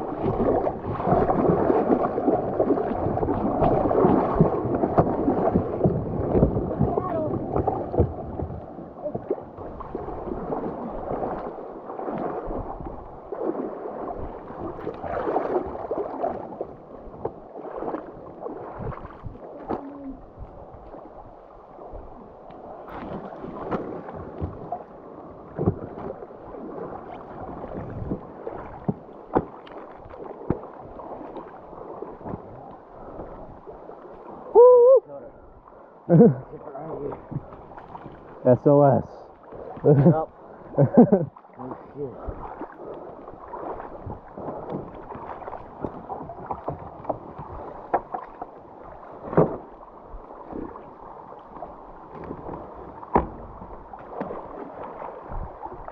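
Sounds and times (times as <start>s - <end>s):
paddles dipping in water: 0.0s - 55.9s
water splashing and gurgling: 0.0s - 55.9s.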